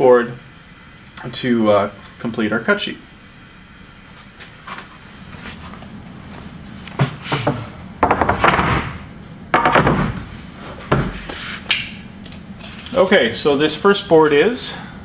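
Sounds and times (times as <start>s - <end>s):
boards scraping on bench: 7.0s - 7.7s
wood knocking on wood: 7.0s - 10.2s.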